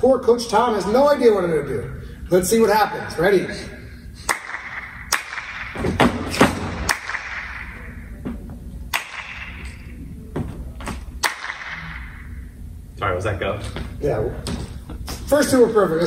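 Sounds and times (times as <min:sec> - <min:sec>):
hand claps echoing in hall: 0:04.2 - 0:08.0, 0:08.9 - 0:09.9, 0:10.9 - 0:12.3.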